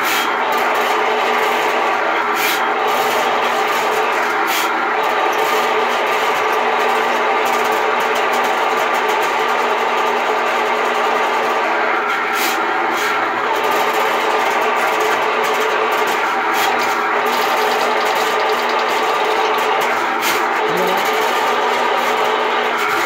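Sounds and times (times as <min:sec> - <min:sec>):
sewer machine motor running: 0:02.7 - 0:08.7, 0:13.4 - 0:23.0.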